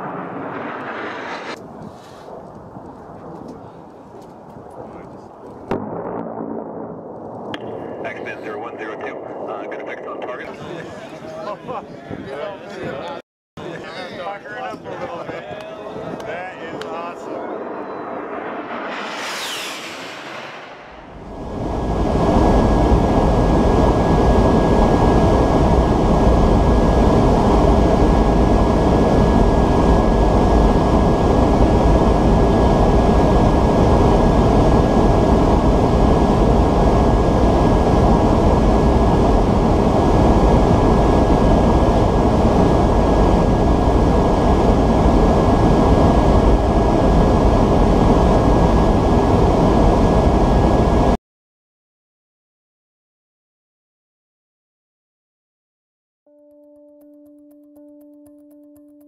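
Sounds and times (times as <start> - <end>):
aircraft engine and airflow drone: 0.0 - 5.8, 13.6 - 51.2
thin steady whine: 13.6 - 51.2.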